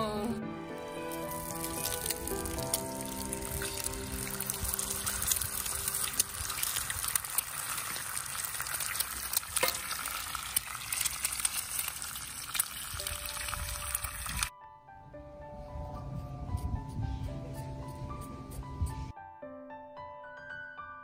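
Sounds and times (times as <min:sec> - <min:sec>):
eggs sizzling in fat: 0:00.8 - 0:14.5
egg cracked into pan: 0:01.3 - 0:14.5.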